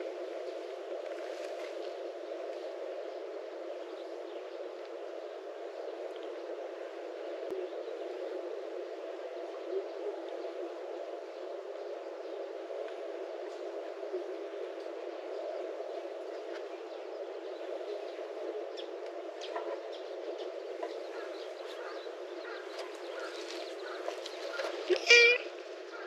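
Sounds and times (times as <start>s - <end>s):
outdoor background noise: 0.0s - 26.0s
faint bird chirps: 15.4s - 26.0s.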